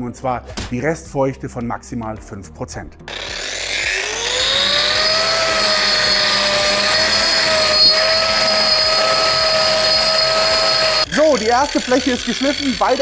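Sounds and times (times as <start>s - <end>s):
concrete grinder whine: 3.1s - 13.0s
grinding hiss: 3.1s - 13.0s.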